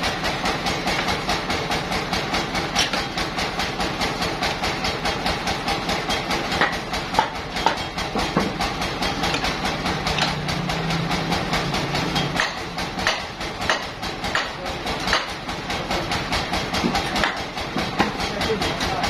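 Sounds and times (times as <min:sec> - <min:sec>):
sawmill machinery rattle and hum: 0:00.0 - 0:19.0
sharp metal clanks: 0:11.4 - 0:15.4.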